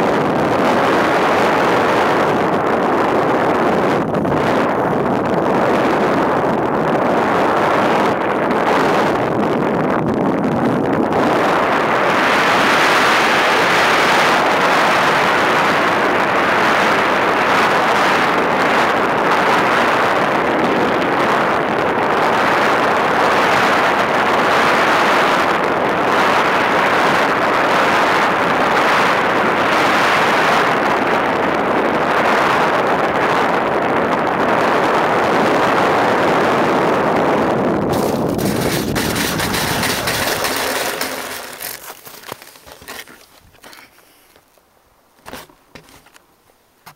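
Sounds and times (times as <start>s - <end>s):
rushing airflow over microphone: 36.1s - 44.6s.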